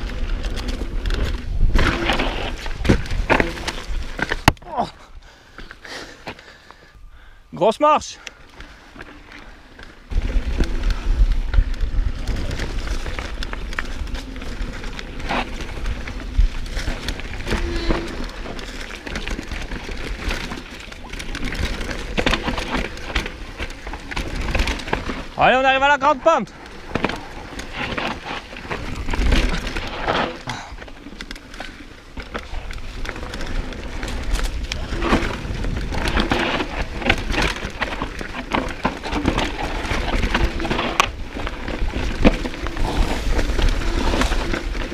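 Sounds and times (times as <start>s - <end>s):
bike rattling and knocking: 0.0s - 4.9s, 8.5s - 44.9s
tyres crunching on dirt: 8.2s - 44.9s
wind rumbling on microphone: 10.0s - 25.4s, 32.2s - 44.9s.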